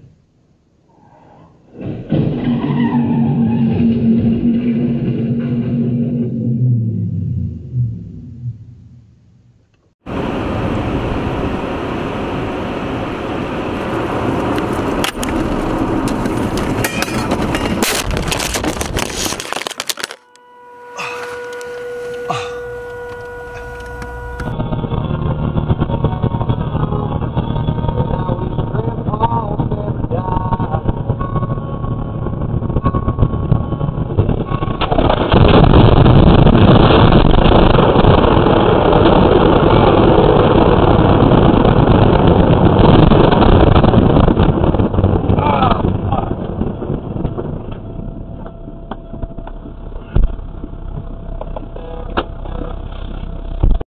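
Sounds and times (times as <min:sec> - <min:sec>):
vehicle engine and tyres rumbling: 0:00.0 - 0:53.8
steady electric hum: 0:04.5 - 0:53.8
knocks and rattles: 0:15.0 - 0:20.4
even electronic tones: 0:18.8 - 0:35.1, 0:46.4 - 0:53.8
heavy thump: 0:47.0 - 0:52.7.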